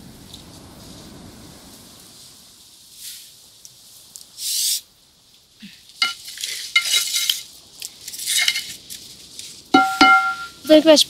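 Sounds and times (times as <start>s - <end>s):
metal clinks against pan: 6.0s - 7.3s, 9.8s - 10.6s
spatula scraping metal pan: 6.0s - 7.4s.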